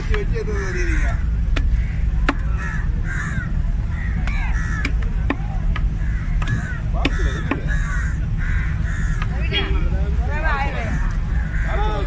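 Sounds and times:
low rumble: 0:00.0 - 0:12.0
crows cawing: 0:00.3 - 0:12.0.

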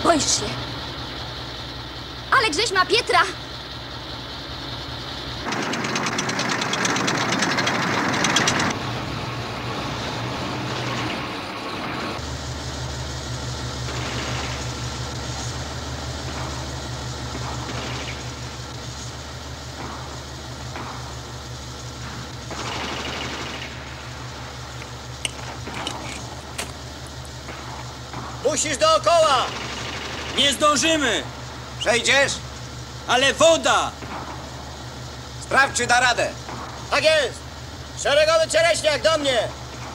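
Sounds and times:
tank engine droning: 0:00.0 - 0:39.9
loud rapid clatter: 0:05.4 - 0:08.8, 0:13.8 - 0:15.2, 0:16.2 - 0:18.8, 0:21.9 - 0:26.8, 0:27.4 - 0:31.2.

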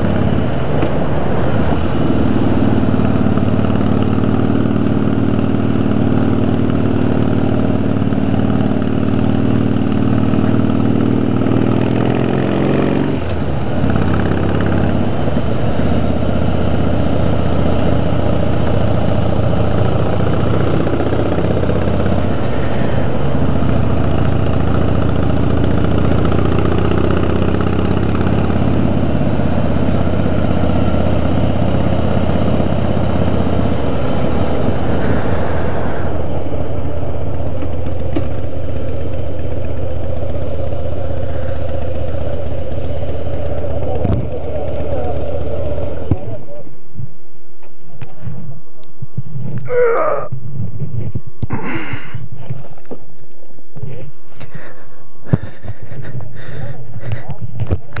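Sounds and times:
motorcycle engine running: 0:00.0 - 0:49.5
wind rushing over microphone: 0:33.9 - 0:37.8, 0:50.3 - 0:51.6.

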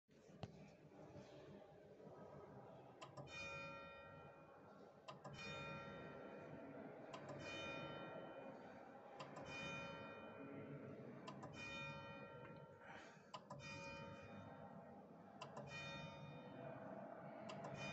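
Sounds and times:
church bell ringing: 0:05.4 - 0:06.7, 0:07.4 - 0:08.8, 0:09.5 - 0:10.9, 0:11.5 - 0:12.8, 0:13.6 - 0:14.7, 0:15.7 - 0:16.7.

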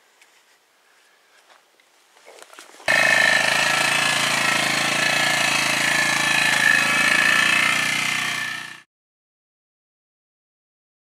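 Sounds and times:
atv engine running: 0:02.8 - 0:08.9.

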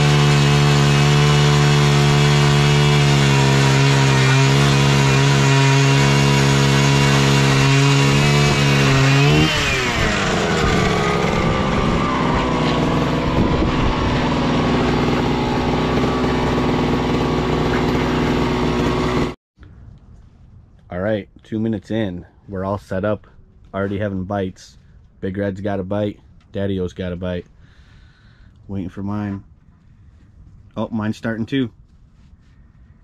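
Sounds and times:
ice auger engine running: 0:00.0 - 0:19.4.

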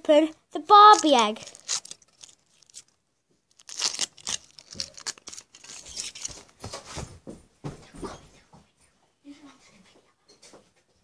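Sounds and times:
foil wrapper crackling and tearing: 0:00.9 - 0:06.4.

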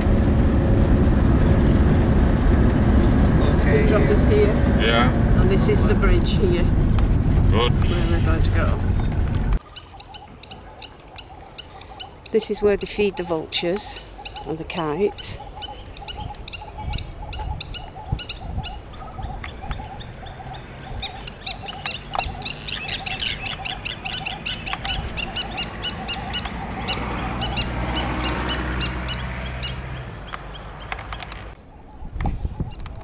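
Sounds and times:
high bird chirps: 0:09.0 - 0:33.0
low pulsing bird call: 0:09.0 - 0:33.0.

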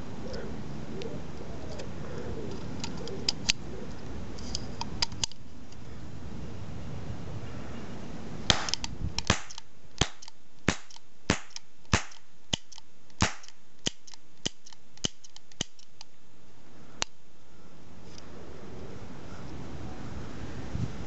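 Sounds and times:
toy cap gun cracks: 0:08.5 - 0:16.1.

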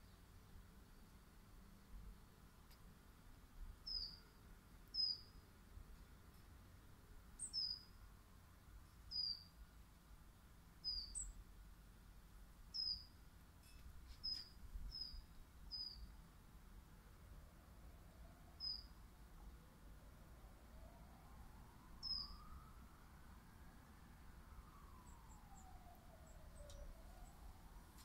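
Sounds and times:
songbird high call notes: 0:03.9 - 0:04.3, 0:04.9 - 0:05.4, 0:07.4 - 0:08.0, 0:09.1 - 0:09.5, 0:10.8 - 0:11.4, 0:12.7 - 0:13.1, 0:14.2 - 0:16.1, 0:18.6 - 0:19.0, 0:22.0 - 0:22.6.

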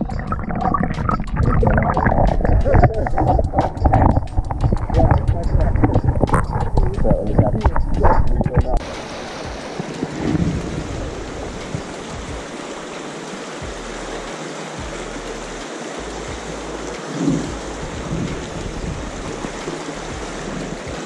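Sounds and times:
low bump: 0:00.0 - 0:09.0
stream rushing over rocks: 0:00.0 - 0:21.0.

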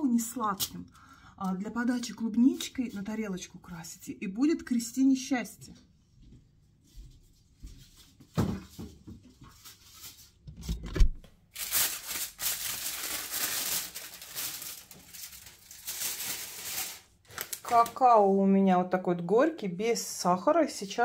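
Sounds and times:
packaging rustling and tearing: 0:11.5 - 0:18.0.

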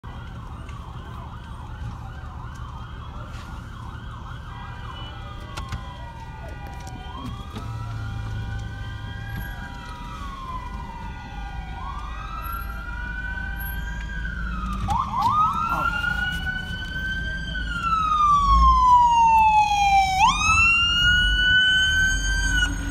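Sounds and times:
emergency siren wailing: 0:00.0 - 0:22.9
low rumble of vehicles: 0:00.0 - 0:22.9
second siren sweeping: 0:00.2 - 0:22.9.

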